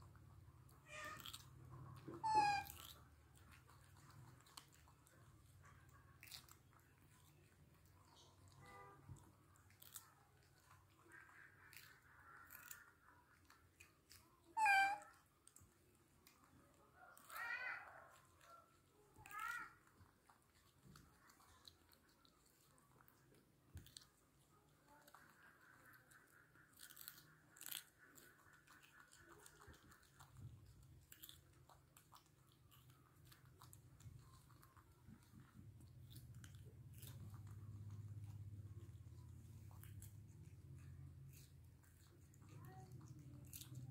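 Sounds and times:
faint low hum: 0:00.0 - 0:43.9
monkeys chewing with crunching clicks: 0:00.0 - 0:43.9
baby monkey high-pitched call: 0:00.8 - 0:01.4, 0:02.0 - 0:03.0, 0:14.5 - 0:15.3.

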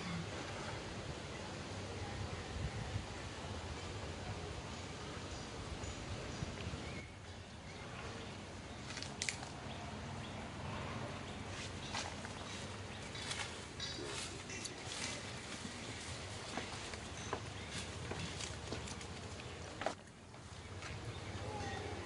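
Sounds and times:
steady outdoor hiss: 0:00.0 - 0:22.0.

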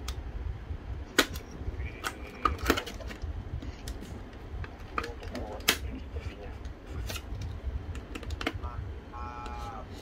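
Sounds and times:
hard plastic case clicking: 0:07.1 - 0:08.6.

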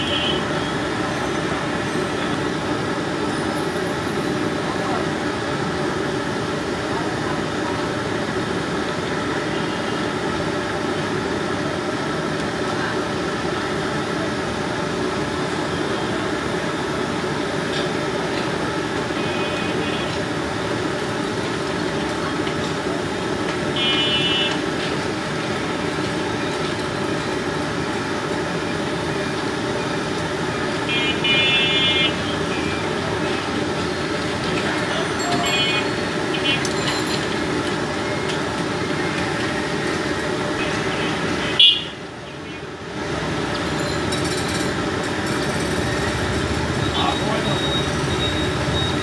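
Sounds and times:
busy street noise: 0:00.0 - 0:49.0
short high beeps: 0:46.7 - 0:49.0.

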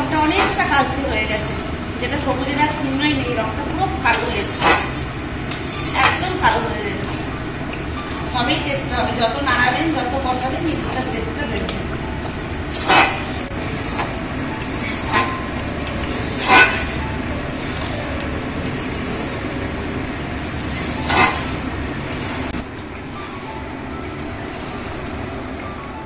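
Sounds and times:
metal spatula scraping a pan: 0:00.0 - 0:01.6, 0:04.1 - 0:06.4, 0:12.7 - 0:14.1, 0:14.8 - 0:18.0, 0:20.4 - 0:22.6.

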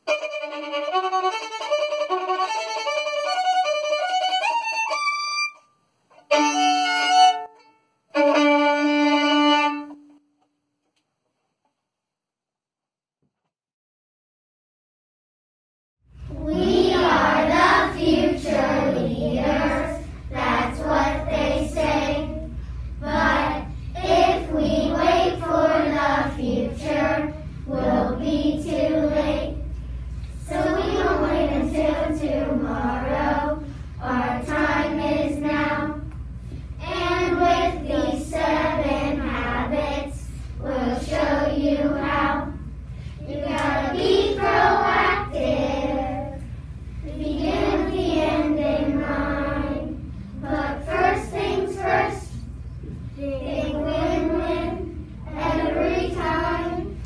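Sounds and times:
steady low hum: 0:16.1 - 0:57.0
young children singing: 0:16.3 - 0:36.2, 0:36.8 - 0:57.0.

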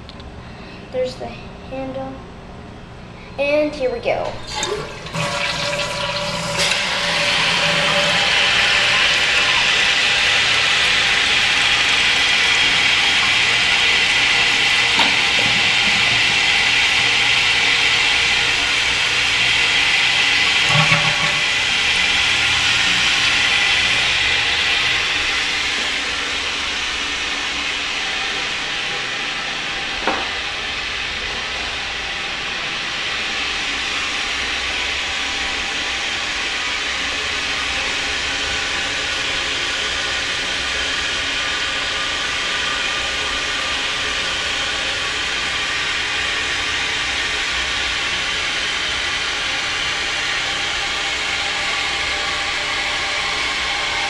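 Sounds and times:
toilet fill valve hissing: 0:04.4 - 0:27.8.

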